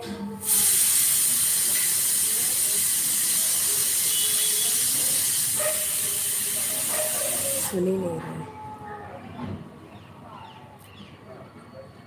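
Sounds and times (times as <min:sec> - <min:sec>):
pressure cooker whistle hissing: 0:00.4 - 0:07.8.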